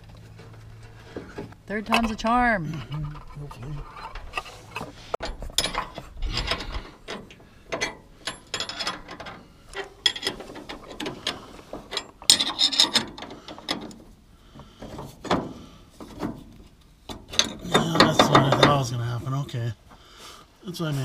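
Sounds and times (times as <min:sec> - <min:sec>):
metal-on-metal clinks: 0:07.8 - 0:09.3.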